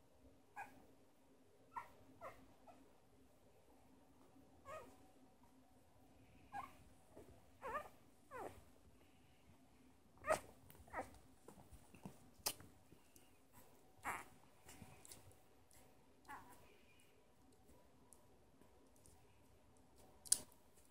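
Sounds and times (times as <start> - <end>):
puppy squeaking: 7.6 - 8.5, 14.0 - 14.3.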